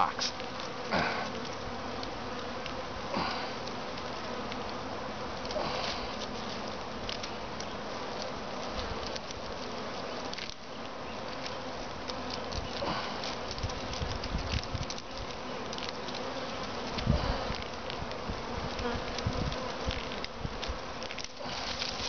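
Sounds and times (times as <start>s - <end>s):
bees buzzing: 0.0s - 22.0s
branches being clipped: 5.4s - 22.0s.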